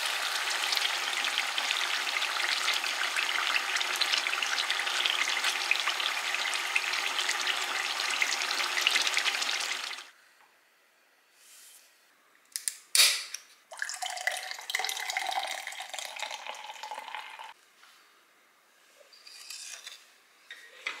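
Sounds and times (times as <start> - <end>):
seafood sizzling in oil: 0.0 - 10.1
soda can cracked open: 12.6 - 13.4
soda poured fizzing into glass: 13.7 - 17.6.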